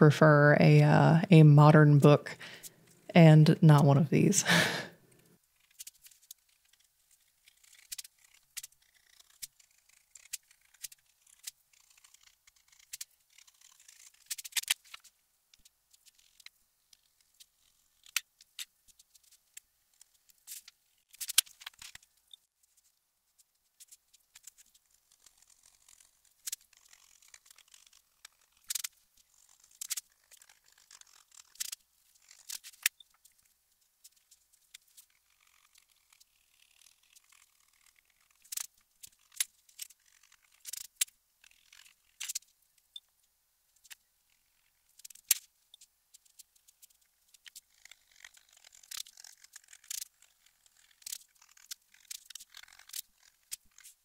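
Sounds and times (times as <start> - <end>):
metal spatula scraping paper: 5.6 - 15.1.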